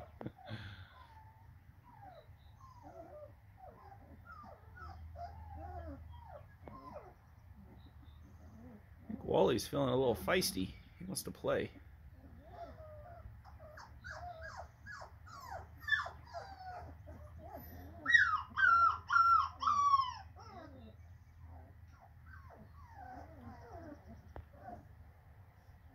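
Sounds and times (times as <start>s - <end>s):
puppies whimpering and squealing: 0.0s - 10.5s, 11.7s - 25.0s.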